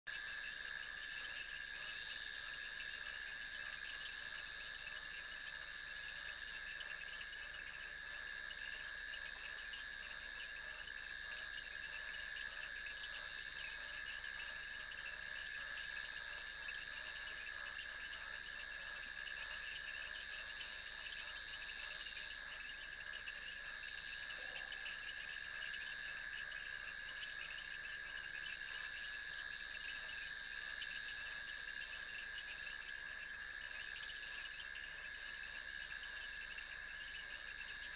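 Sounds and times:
insects trilling: 0.1 - 37.9.

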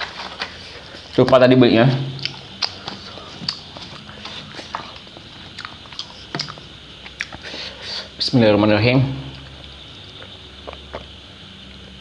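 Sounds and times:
eating clicks and smacks: 2.2 - 7.6, 9.3 - 11.8.

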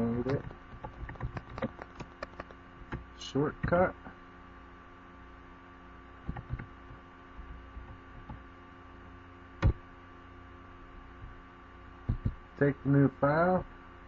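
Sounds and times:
electrical mains hum: 0.0 - 14.0
computer clicks: 0.2 - 2.6.

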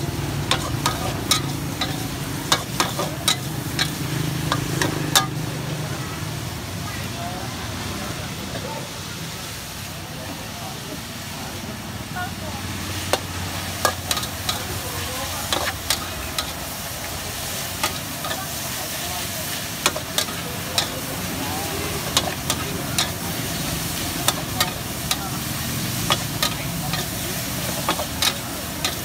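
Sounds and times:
vegetables sizzling: 0.0 - 29.0
metal spatula scraping a wok: 0.3 - 5.4, 13.0 - 16.8, 19.6 - 21.3, 21.9 - 29.0.

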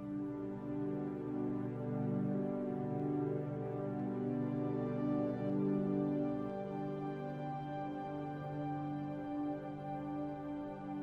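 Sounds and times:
ambient music with held tones: 0.0 - 11.0.

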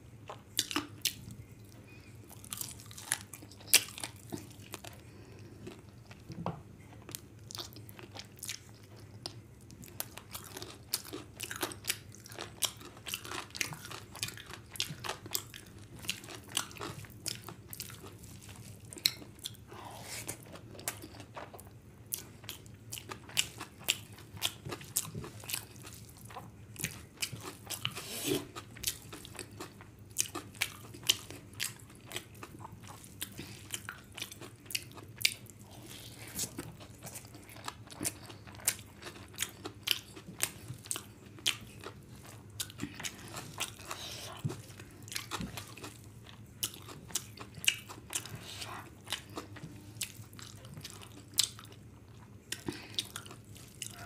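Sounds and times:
chewing and wet mouth sounds: 0.2 - 54.0.

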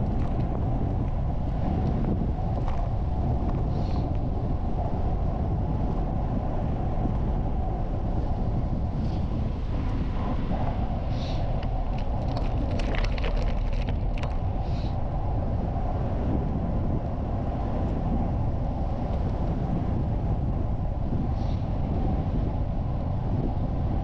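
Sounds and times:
wind on microphone: 0.0 - 24.0
bicycle rolling on gravel: 11.2 - 14.9.

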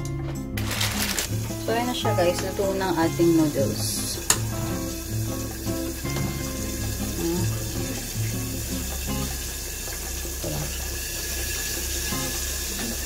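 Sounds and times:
background music: 0.0 - 9.9
water simmering and bubbling: 1.2 - 13.0.

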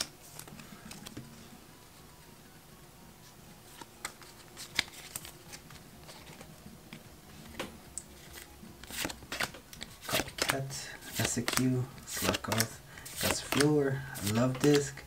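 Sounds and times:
trading cards flipped through: 0.0 - 1.2, 3.7 - 15.0.

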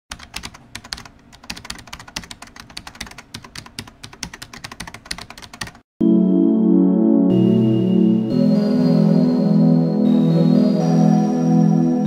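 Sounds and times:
keyboard typing: 0.1 - 5.8.

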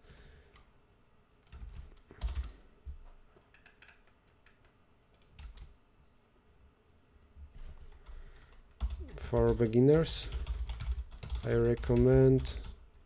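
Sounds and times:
computer keyboard typing: 1.4 - 2.6, 3.5 - 5.8, 7.9 - 13.0.

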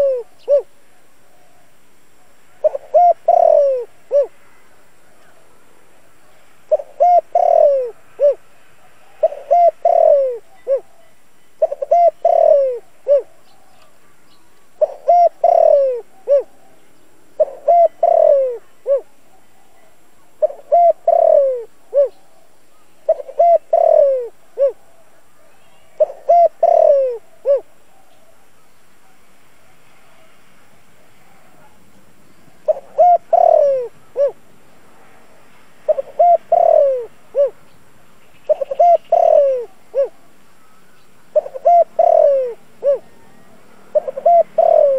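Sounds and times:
dove cooing: 0.0 - 1.6, 2.2 - 4.6, 6.3 - 14.0, 14.8 - 28.4, 32.6 - 34.4, 35.9 - 37.6, 38.4 - 44.9.

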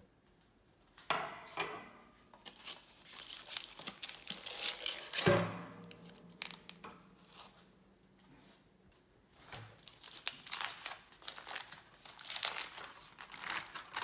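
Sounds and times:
aluminium foil crinkling: 2.4 - 7.6, 9.8 - 14.0.

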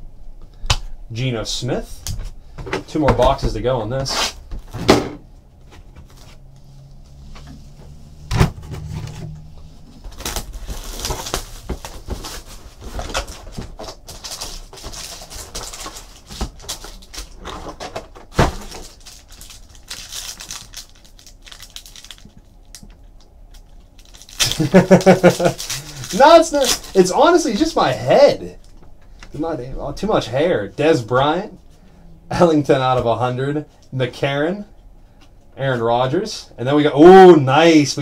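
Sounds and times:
wrappers crinkling and tearing: 10.1 - 28.0
cards being shuffled: 24.1 - 27.1.

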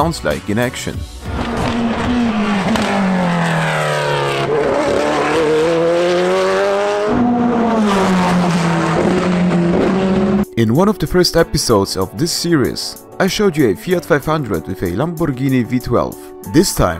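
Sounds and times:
race car engine at high revs: 1.2 - 10.5.

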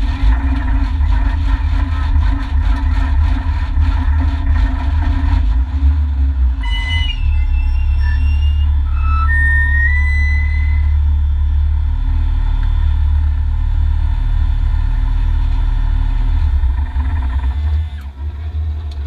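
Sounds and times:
rattle: 0.0 - 5.8, 16.2 - 19.0
car engine idling: 0.0 - 19.0
thin high tones: 6.6 - 11.0.

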